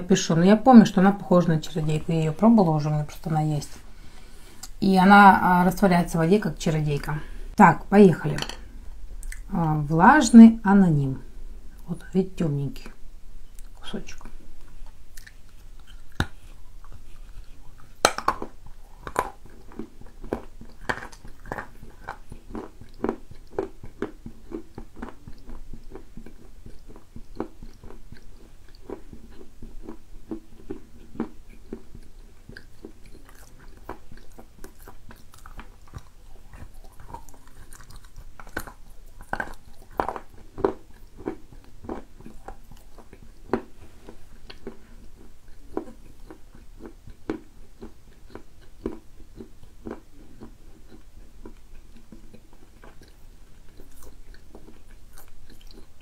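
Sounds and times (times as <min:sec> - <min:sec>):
person chewing crunchy clay: 0:13.5 - 0:56.0.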